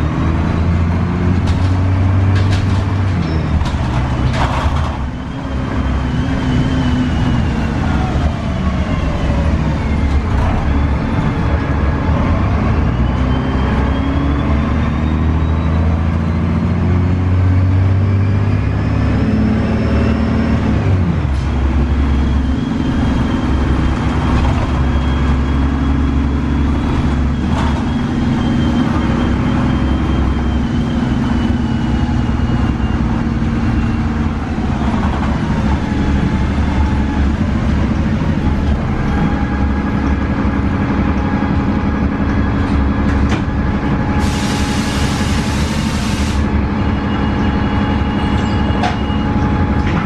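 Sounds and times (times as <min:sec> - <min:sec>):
bus diesel engine running: 0:00.0 - 0:50.0
road noise: 0:00.0 - 0:50.0.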